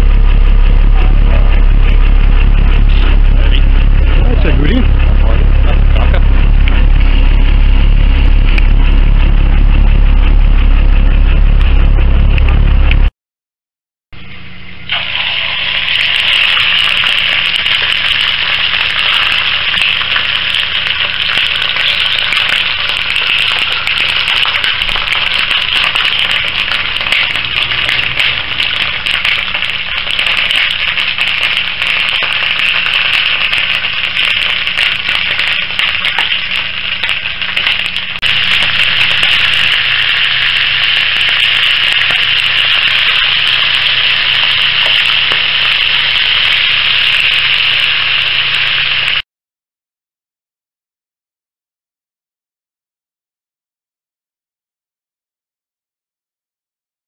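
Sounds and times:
fish sizzling in a frying pan: 0:14.9 - 0:49.2.

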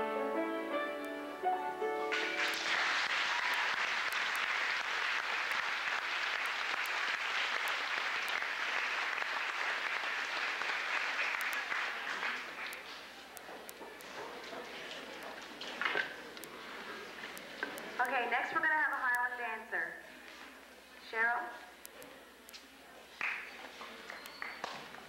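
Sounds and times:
recorded music: 0:00.0 - 0:02.9
audience applauding: 0:02.1 - 0:13.3, 0:23.2 - 0:25.0.

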